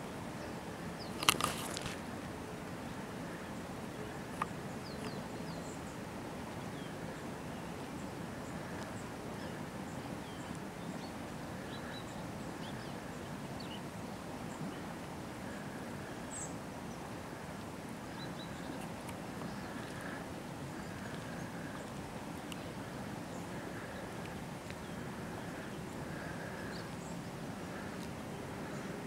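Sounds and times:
outdoor background hiss: 0:00.0 - 0:29.0.

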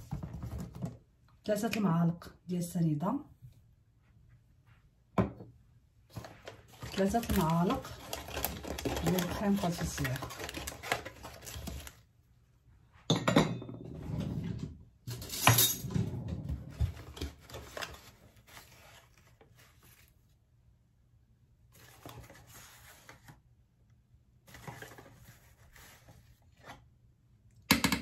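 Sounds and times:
handling cardboard box and packet: 0:06.1 - 0:12.1, 0:16.9 - 0:20.4, 0:21.7 - 0:23.4, 0:24.4 - 0:26.8.

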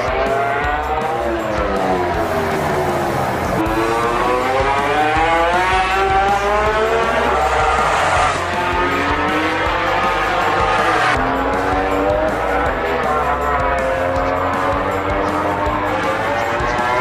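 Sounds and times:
racing motorcycle engine at full throttle: 0:00.0 - 0:17.0.

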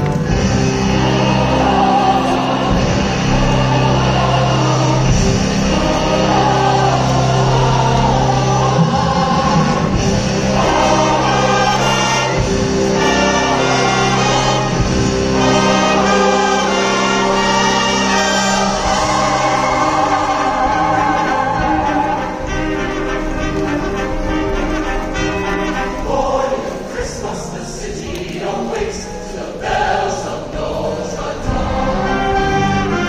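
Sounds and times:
live band accompaniment: 0:00.0 - 0:26.6
choir singing: 0:00.0 - 0:33.0.

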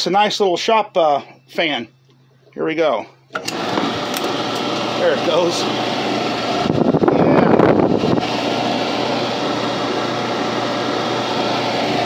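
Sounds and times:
clothes dryer fan running: 0:02.8 - 0:12.0.

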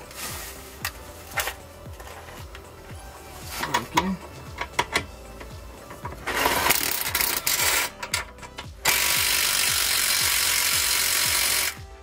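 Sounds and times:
background music with beat: 0:00.0 - 0:12.0
impact wrench tightening nut: 0:03.6 - 0:11.8.

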